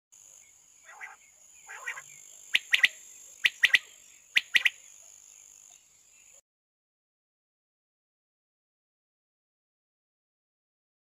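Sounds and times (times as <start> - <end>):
quail raspy notes: 0.8 - 4.8
quail sharp call bursts: 0.9 - 2.0, 2.6 - 4.8.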